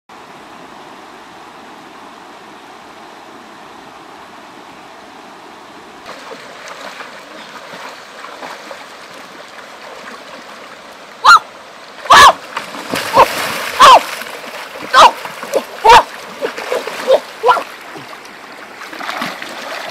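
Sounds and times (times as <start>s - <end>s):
running water: 0.1s - 19.9s
person wading through water: 6.0s - 11.3s, 12.0s - 19.9s.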